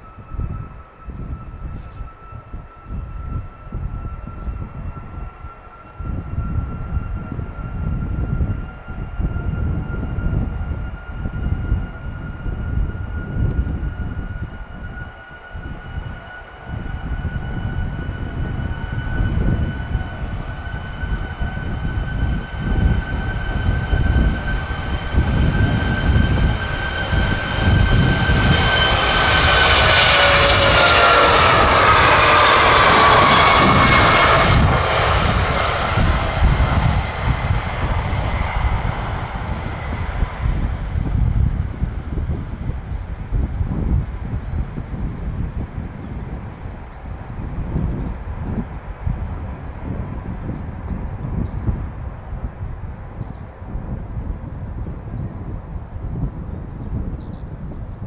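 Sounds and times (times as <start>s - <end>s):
jet airliner taking off: 0.0s - 58.0s.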